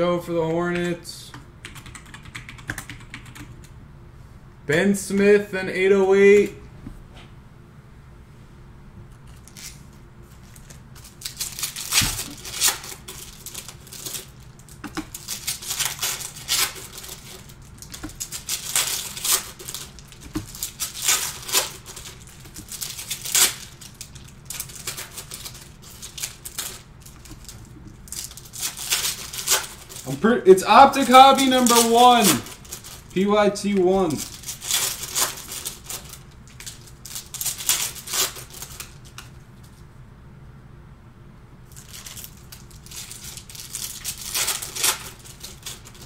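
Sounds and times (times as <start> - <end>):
foil packs crinkling: 9.3 - 39.3, 41.7 - 46.0.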